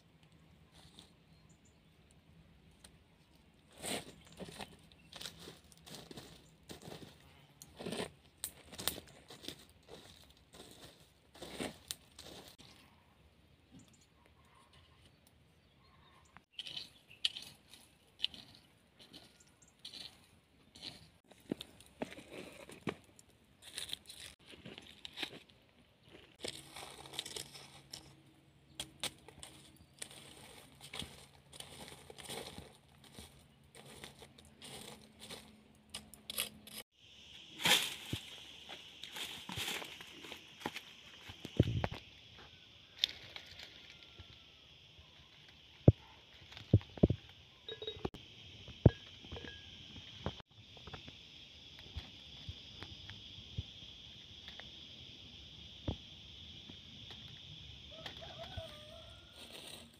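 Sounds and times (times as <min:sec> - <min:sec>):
stick scraping through ash: 0:16.4 - 0:25.5, 0:28.8 - 0:36.9.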